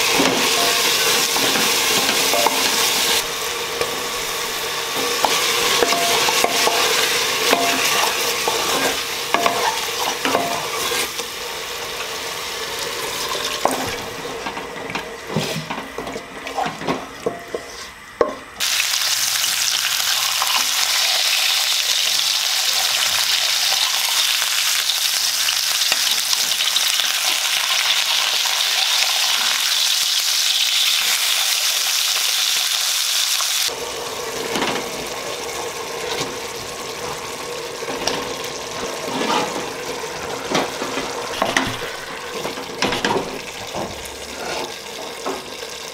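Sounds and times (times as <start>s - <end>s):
meat sizzling in a pan: 0.0s - 14.3s, 18.6s - 45.9s
wooden spatula scraping a pot: 5.8s - 11.2s, 38.8s - 42.0s, 44.2s - 45.2s.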